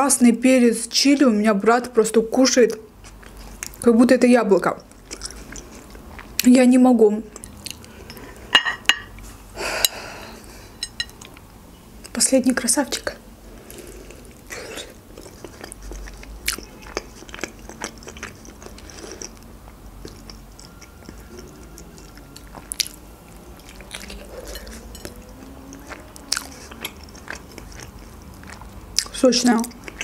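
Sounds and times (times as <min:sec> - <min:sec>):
person chewing and biting: 0:13.8 - 0:29.1.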